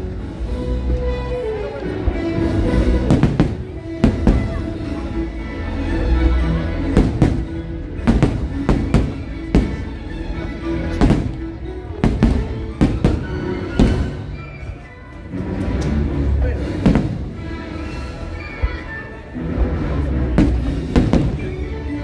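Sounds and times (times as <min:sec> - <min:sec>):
fireworks show music: 0:00.0 - 0:22.0
fireworks bangs: 0:03.0 - 0:04.7, 0:06.9 - 0:10.0, 0:10.9 - 0:14.4, 0:16.8 - 0:17.5, 0:20.4 - 0:21.6.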